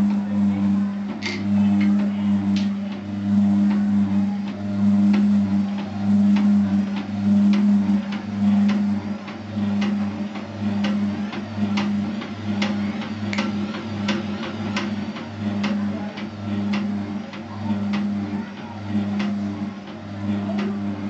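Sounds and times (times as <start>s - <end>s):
machine electric hum: 0.0s - 21.0s.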